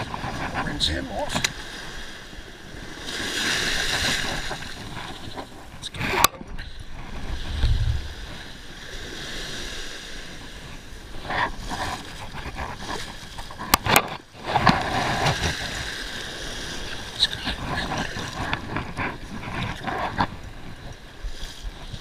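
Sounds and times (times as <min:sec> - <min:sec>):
wind buffeting microphone: 0:00.0 - 0:22.0
surf splashing around legs: 0:07.0 - 0:10.8
low thump: 0:07.5 - 0:08.3.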